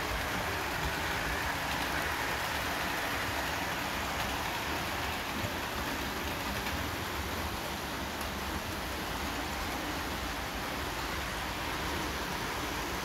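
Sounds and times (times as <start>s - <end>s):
model trains rumbling on track: 0.0s - 13.0s.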